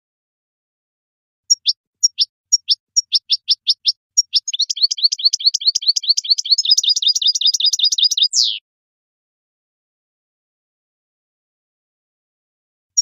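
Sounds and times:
goldfinch singing: 0:01.5 - 0:08.6.

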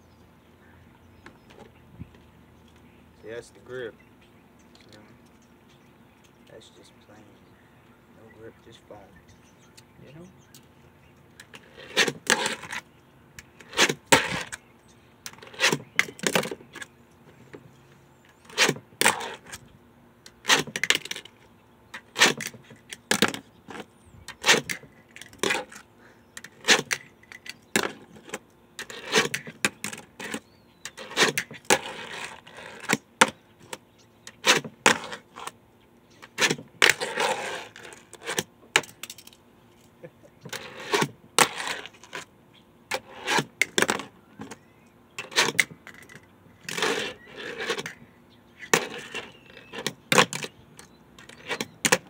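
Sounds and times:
fingerboard scraping: 0:11.5 - 0:12.8, 0:18.4 - 0:19.6, 0:26.4 - 0:27.1, 0:27.8 - 0:33.4, 0:34.3 - 0:35.5, 0:36.2 - 0:38.5, 0:40.4 - 0:42.3, 0:42.9 - 0:44.6, 0:45.2 - 0:45.8, 0:46.6 - 0:48.0, 0:48.6 - 0:50.5.

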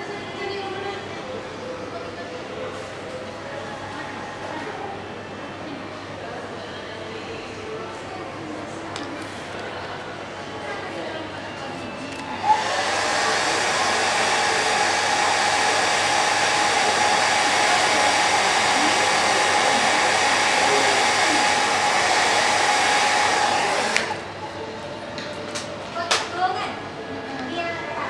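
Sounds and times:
hair dryer blowing: 0:12.2 - 0:24.2.

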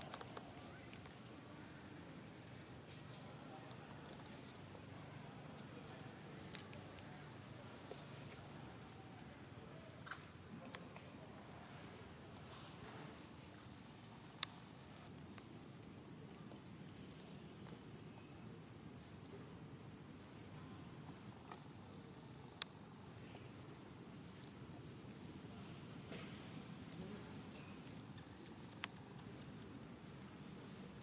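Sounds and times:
high-pitched insect chorus: 0:00.0 - 0:31.0.

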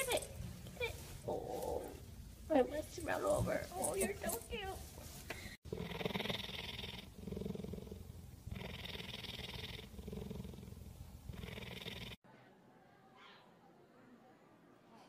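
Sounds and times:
cheetah purring: 0:05.6 - 0:12.2.

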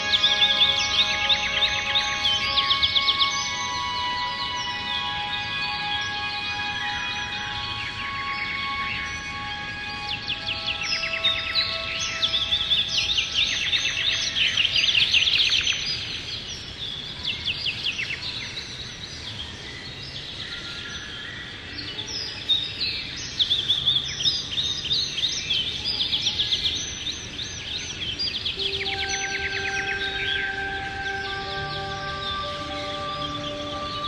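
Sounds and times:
calm ambient music: 0:00.0 - 0:34.0
songbirds chirping and trilling: 0:00.0 - 0:34.0.

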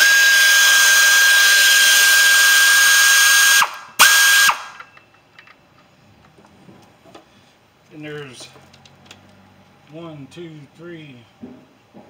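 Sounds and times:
air ratchet whining: 0:00.0 - 0:05.1.

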